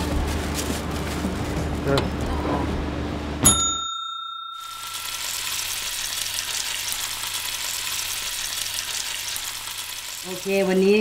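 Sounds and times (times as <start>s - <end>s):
bright bell-like ding: 3.4s - 5.6s
food frying in hot oil: 4.8s - 11.0s.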